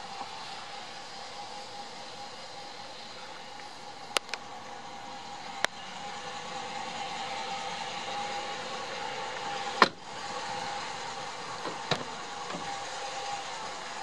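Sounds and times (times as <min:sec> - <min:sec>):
truck humming: 0:00.0 - 0:14.0
truck door shutting: 0:09.8 - 0:10.0, 0:11.6 - 0:12.8.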